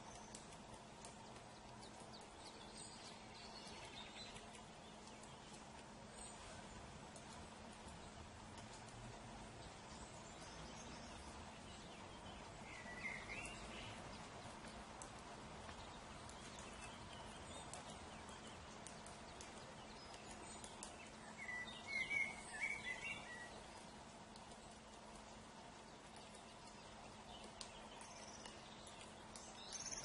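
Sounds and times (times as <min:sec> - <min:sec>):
birds chirping: 0:00.0 - 0:08.8, 0:09.6 - 0:30.0
background noise: 0:00.0 - 0:30.0
faint ticks: 0:00.0 - 0:30.0.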